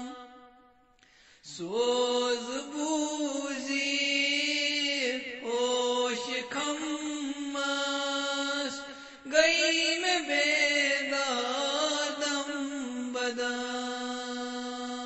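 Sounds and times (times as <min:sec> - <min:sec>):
short breath: 0:01.0 - 0:01.5, 0:08.9 - 0:09.3
man chanting unaccompanied: 0:01.5 - 0:15.0.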